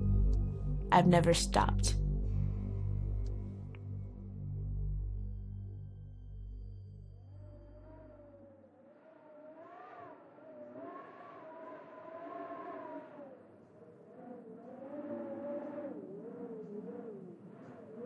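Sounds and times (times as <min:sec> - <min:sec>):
long wavering wail: 0:05.8 - 0:18.0.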